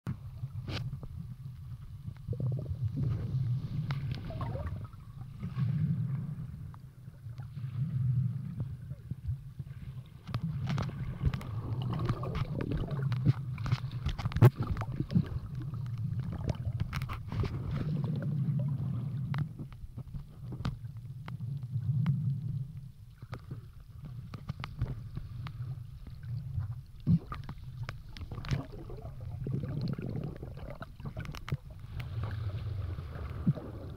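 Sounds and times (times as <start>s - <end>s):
sharp underwater clicks and crackles: 0.1s - 33.9s
underwater sea water surging: 0.2s - 33.9s.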